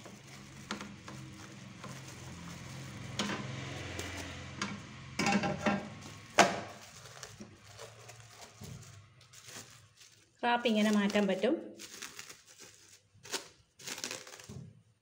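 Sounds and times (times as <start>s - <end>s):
cling film rustling and crinkling: 0.0s - 5.2s, 5.9s - 15.0s
metal tray clack: 4.6s - 6.0s.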